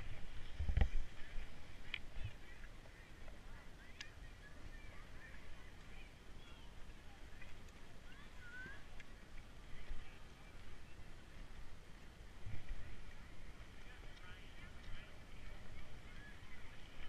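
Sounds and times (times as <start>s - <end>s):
low rumble of wind: 0.0s - 17.0s.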